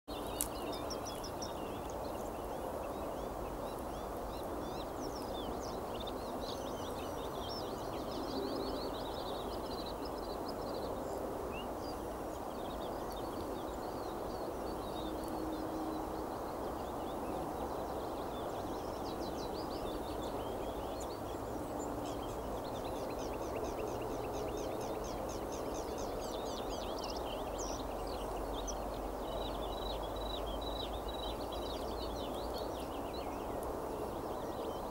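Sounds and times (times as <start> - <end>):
songbirds chirping: 0.0 - 34.9
low rushing background noise: 0.1 - 34.9.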